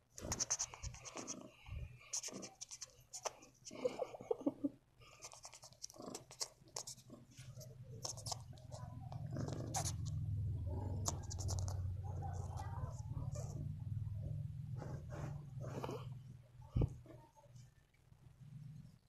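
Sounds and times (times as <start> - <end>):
steady low rumble: 8.9 - 17.0
scratching of fur and bedding: 14.8 - 16.0.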